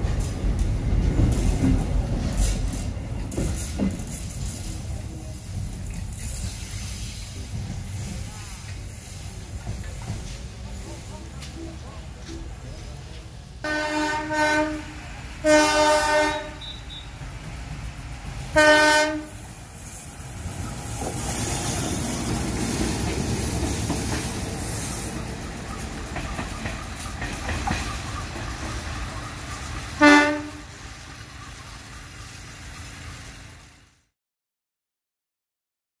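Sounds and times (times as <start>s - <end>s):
train wheels rumbling: 0.0s - 34.0s
train horn blasts: 13.6s - 17.2s, 18.5s - 19.4s, 29.9s - 30.8s.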